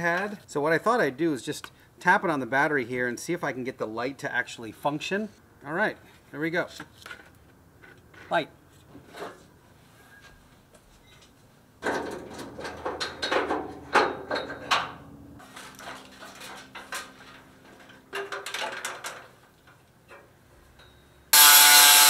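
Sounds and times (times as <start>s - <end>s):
power grinder cutting sheet metal: 21.3s - 22.0s.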